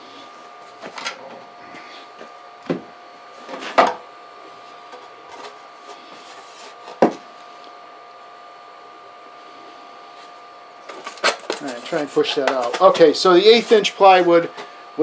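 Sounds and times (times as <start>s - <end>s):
faint electrical whine: 0.0s - 15.0s
handling knocks on plywood: 2.6s - 2.9s, 7.0s - 7.2s.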